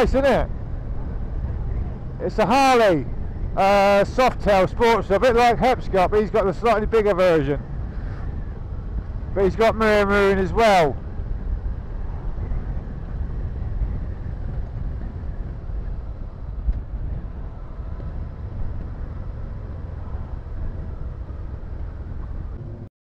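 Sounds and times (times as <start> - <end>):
wind rushing over microphone: 0.0 - 22.9
motorcycle engine running: 11.0 - 22.9.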